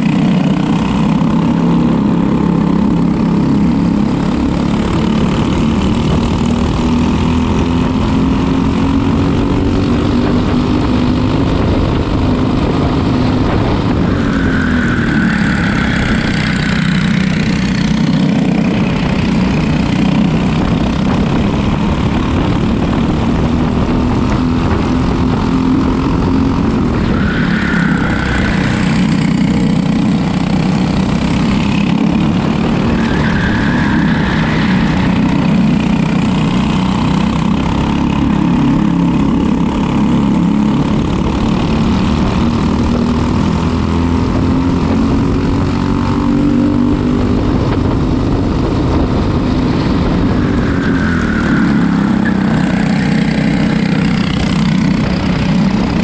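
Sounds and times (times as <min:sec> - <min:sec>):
kart engine revving: 0:00.0 - 0:56.0.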